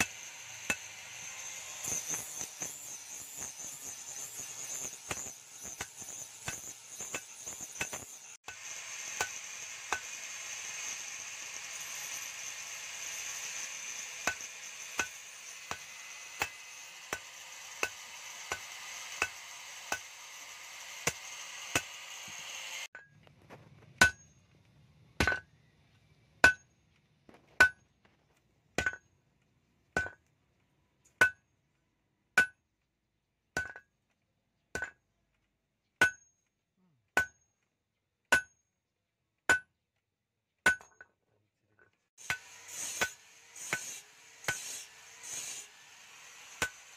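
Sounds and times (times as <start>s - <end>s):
hammer striking steel on anvil: 0.0s - 11.0s, 13.0s - 23.1s, 24.0s - 24.3s, 25.2s - 25.5s, 26.4s - 26.7s, 28.8s - 29.1s, 30.0s - 30.3s, 32.4s - 32.6s, 33.6s - 33.9s, 34.8s - 35.0s, 37.2s - 37.4s, 39.5s - 39.7s, 40.7s - 41.1s, 42.2s - 46.9s.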